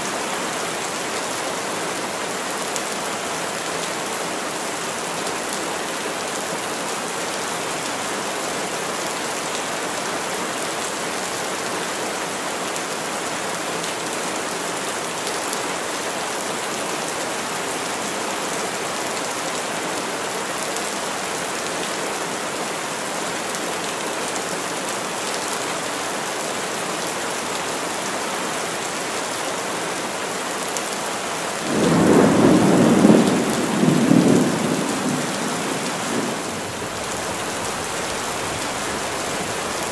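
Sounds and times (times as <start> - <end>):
heavy rain falling: 0.0 - 39.9
thunder rumbling: 31.7 - 39.8.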